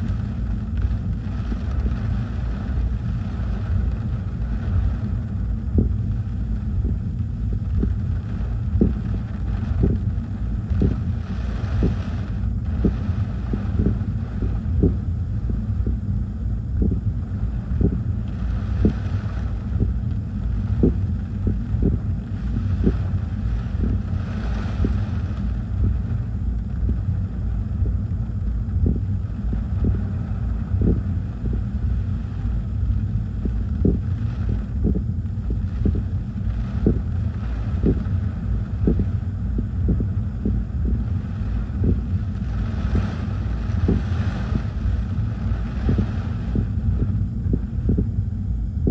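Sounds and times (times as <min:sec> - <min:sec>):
wind buffeting microphone: 0:06.8 - 0:16.0, 0:16.7 - 0:20.0, 0:20.6 - 0:25.2, 0:32.8 - 0:48.2.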